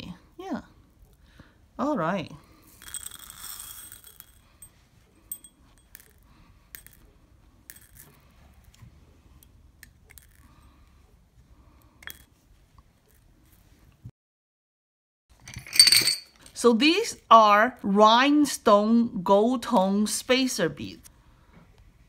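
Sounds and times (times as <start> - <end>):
metal beads clinking in a dish: 2.6 - 8.2, 10.0 - 10.6, 15.5 - 16.6
glass beads clicking in a bowl: 2.8 - 4.6, 5.3 - 7.0, 7.7 - 8.2, 9.8 - 10.4.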